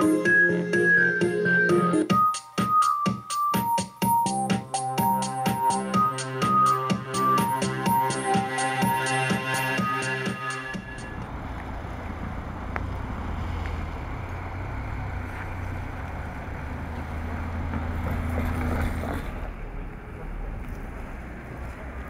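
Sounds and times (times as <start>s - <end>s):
low street rumble: 10.6s - 22.0s.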